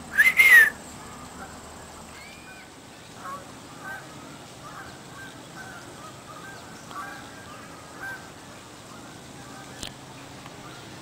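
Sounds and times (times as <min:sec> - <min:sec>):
faint outdoor background noise: 0:00.0 - 0:11.0
short animal calls: 0:00.1 - 0:00.8.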